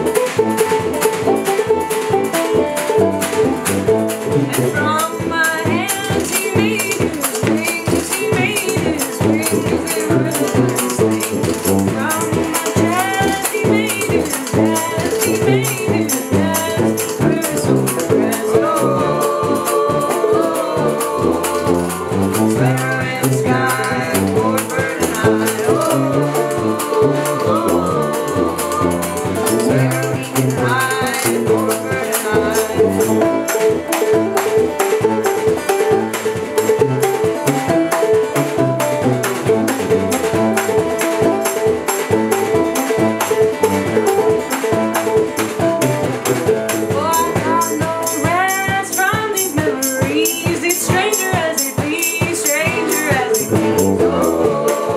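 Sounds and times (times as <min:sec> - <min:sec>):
tuba bass line: 0:00.0 - 0:51.4, 0:52.5 - 0:54.9
acoustic band playing: 0:00.0 - 0:54.9
washboard and snare drum beat: 0:00.0 - 0:54.9
woman singing: 0:04.5 - 0:33.6, 0:46.8 - 0:54.9.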